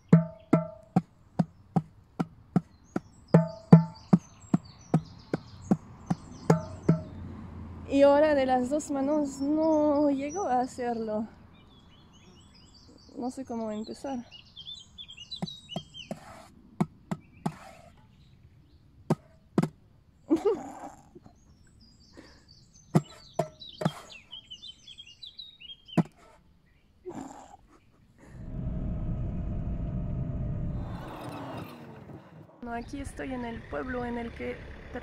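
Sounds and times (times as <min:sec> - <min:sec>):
birds chirping: 0:00.0 - 0:28.5, 0:30.7 - 0:35.0
car driving road noise: 0:00.8 - 0:10.6, 0:28.3 - 0:35.0.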